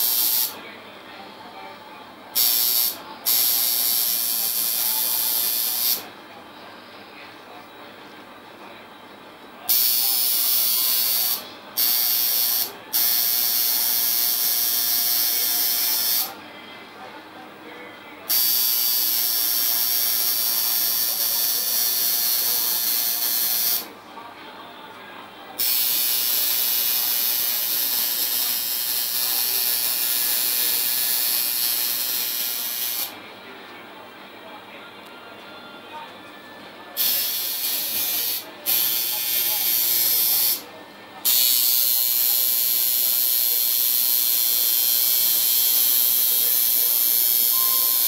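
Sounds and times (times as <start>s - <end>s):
tattoo machine buzzing: 0.0s - 0.6s, 2.4s - 6.0s, 9.7s - 16.3s, 18.3s - 23.9s, 25.6s - 33.2s, 37.0s - 40.6s, 41.2s - 48.0s.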